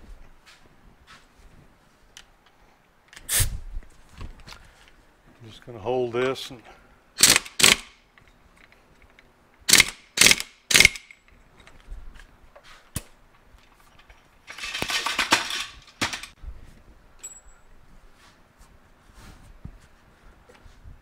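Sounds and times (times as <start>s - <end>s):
impact wrench bursts: 7.2s - 8.0s, 9.7s - 11.2s.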